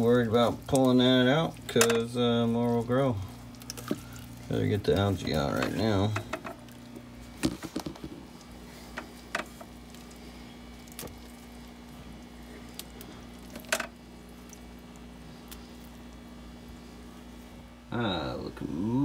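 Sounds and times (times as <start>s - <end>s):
squishy rustles: 6.6s - 17.7s.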